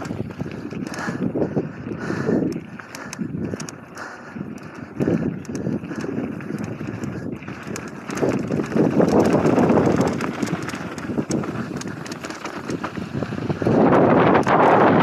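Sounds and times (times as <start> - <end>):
bike rattling and clicking: 0.0 - 15.0
wind buffeting microphone: 0.0 - 15.0
tyres rolling over gravel: 4.6 - 15.0.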